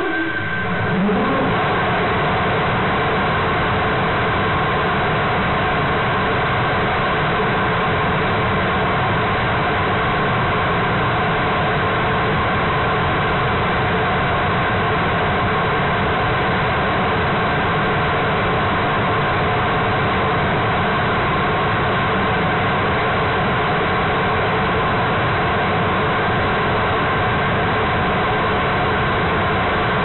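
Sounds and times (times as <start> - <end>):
rocket engine roaring: 0.0 - 2.4.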